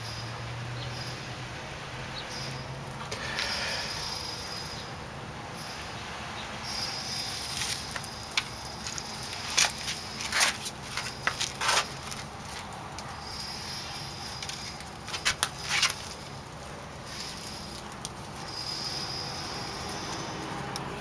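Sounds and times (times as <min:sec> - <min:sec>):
pine needles rustling and crackling: 0:07.1 - 0:21.0.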